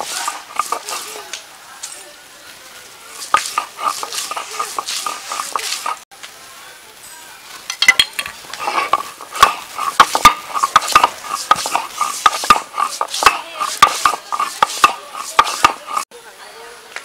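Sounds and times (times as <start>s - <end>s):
stone grinding on stone: 0.0s - 1.1s, 3.3s - 6.0s, 7.8s - 16.1s.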